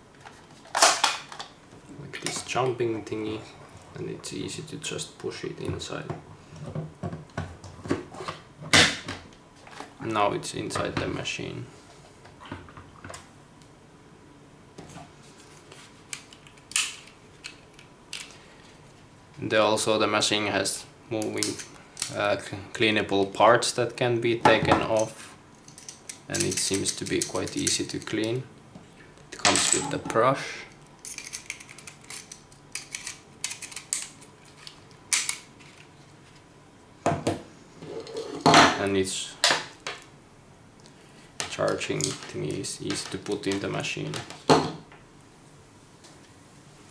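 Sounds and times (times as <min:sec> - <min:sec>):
plastic parts clicking and rattling: 0:31.0 - 0:35.9.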